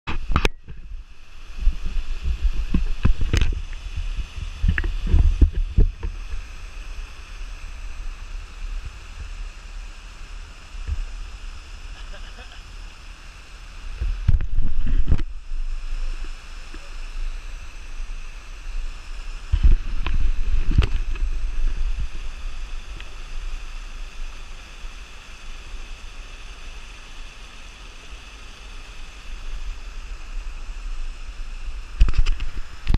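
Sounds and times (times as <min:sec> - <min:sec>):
waterfall rushing over rocks: 0:00.1 - 0:32.9
wind buffeting microphone: 0:19.5 - 0:22.8.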